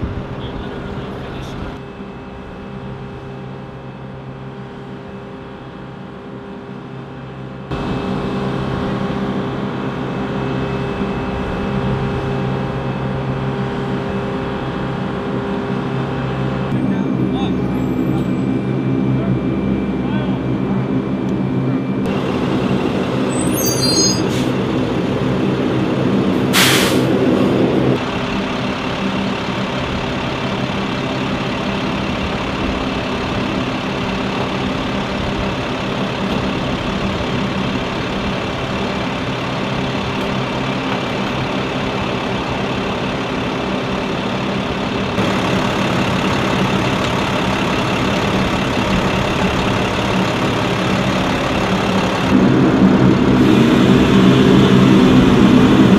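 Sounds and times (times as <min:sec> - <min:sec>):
diesel truck engine running: 0:00.0 - 0:55.9
air brake hiss: 0:26.5 - 0:27.2.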